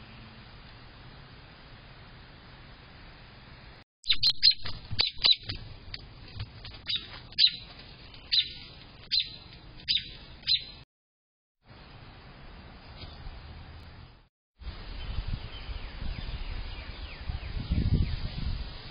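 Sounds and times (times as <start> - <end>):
bird chirping: 4.1 - 5.6, 6.8 - 10.8.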